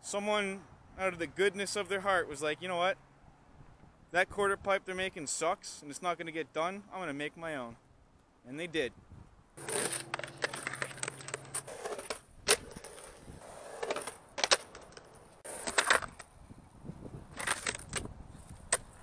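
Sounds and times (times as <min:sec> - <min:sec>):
skateboard wheels rolling on concrete: 0:09.6 - 0:19.0.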